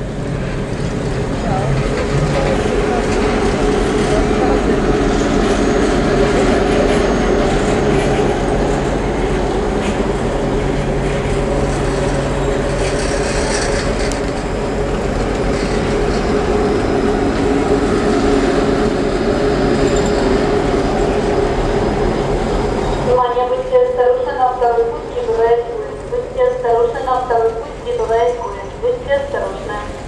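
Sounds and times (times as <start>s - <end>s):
train wheels rumbling on rails: 0.0s - 30.0s.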